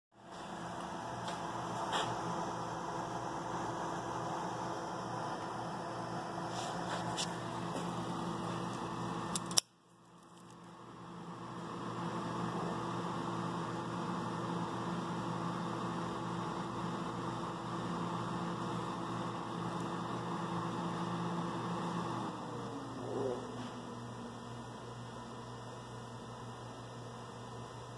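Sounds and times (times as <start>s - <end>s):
machine fan and mains hum: 0.2s - 27.9s
sharp click: 9.3s - 9.8s.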